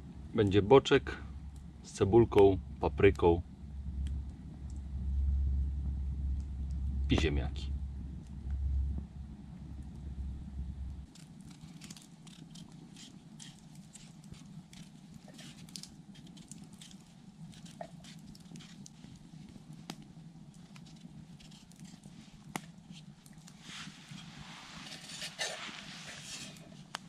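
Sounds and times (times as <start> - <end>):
faint low noise: 0.0 - 11.1
campfire crackling and popping: 0.0 - 27.0.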